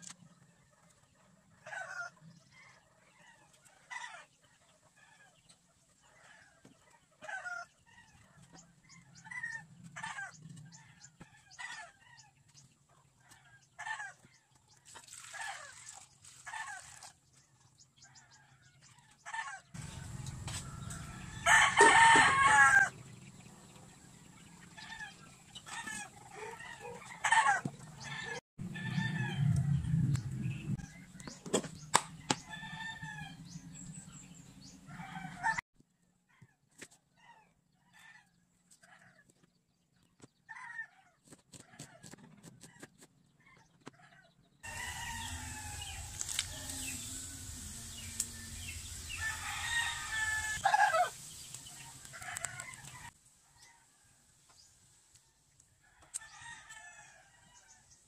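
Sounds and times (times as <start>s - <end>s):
chickens clucking: 19.2s - 28.4s, 43.6s - 53.2s
rooster crowing: 19.4s - 23.0s, 25.8s - 30.0s, 32.3s - 33.5s, 34.9s - 35.6s, 44.6s - 51.2s.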